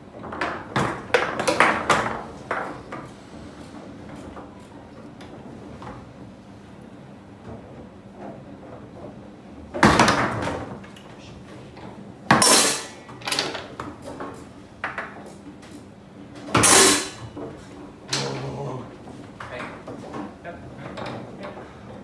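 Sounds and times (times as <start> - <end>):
foosball ball and rods knocking: 0.1 - 3.1, 7.4 - 11.0, 12.2 - 15.6.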